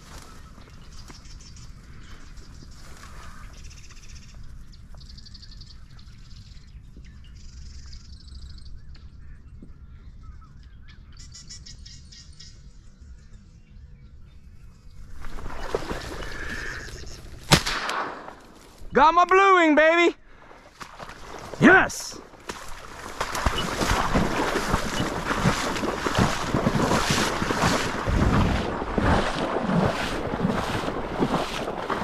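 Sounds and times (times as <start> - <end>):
faint bird chirps: 0.2 - 17.4
shotgun shot: 17.5 - 18.6
loud rustling rush: 22.8 - 32.0.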